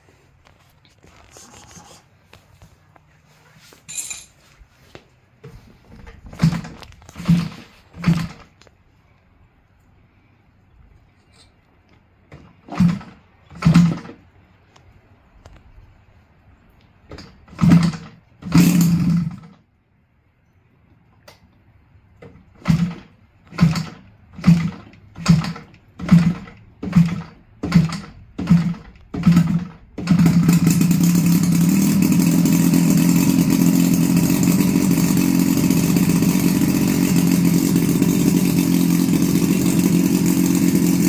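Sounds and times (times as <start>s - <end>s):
model airplane engine sputtering: 17.5s - 19.6s, 22.6s - 41.0s.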